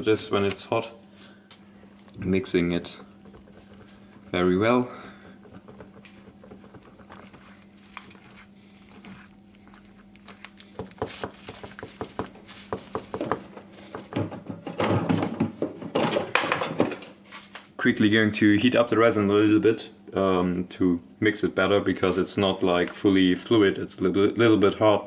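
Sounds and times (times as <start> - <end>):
stir stick scraping inside can: 1.8 - 14.1
rustling and clatter on bench: 1.8 - 17.7.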